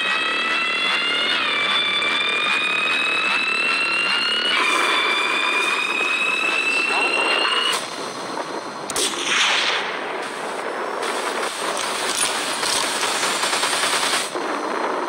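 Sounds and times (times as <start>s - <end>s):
steady background noise: 0.0s - 15.0s
rifle shot: 8.9s - 14.4s.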